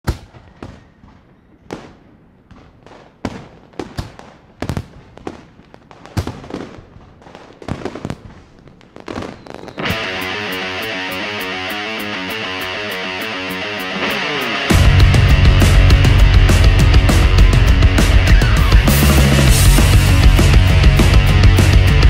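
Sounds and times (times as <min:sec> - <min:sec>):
fireworks exploding: 0:00.0 - 0:10.6.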